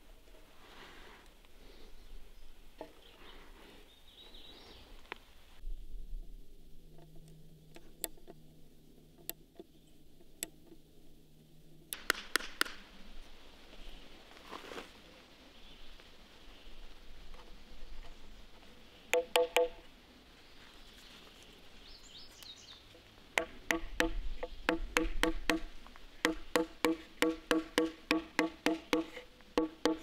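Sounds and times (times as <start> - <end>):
sharp clicks and taps: 11.9 - 12.8.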